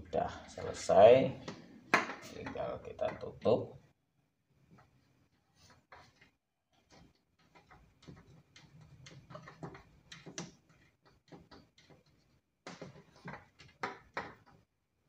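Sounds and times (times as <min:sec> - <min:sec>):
plastic clicks and knocks: 0:06.9 - 0:14.6.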